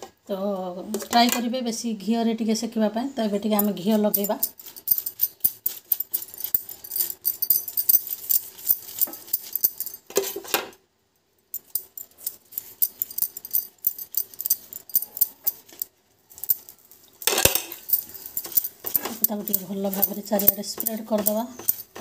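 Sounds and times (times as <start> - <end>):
light metallic clinks: 3.6 - 10.4, 11.5 - 22.0.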